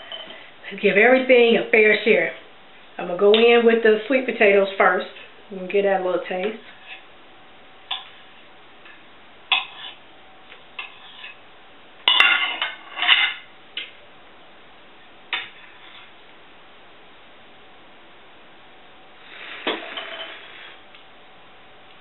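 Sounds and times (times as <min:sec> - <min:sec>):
cutlery clinking on a plate: 0:12.1 - 0:13.4.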